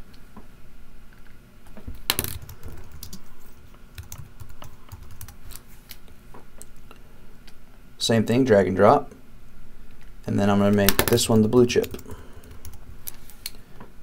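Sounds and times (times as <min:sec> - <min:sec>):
keyboard typing clicks: 0:04.0 - 0:05.4.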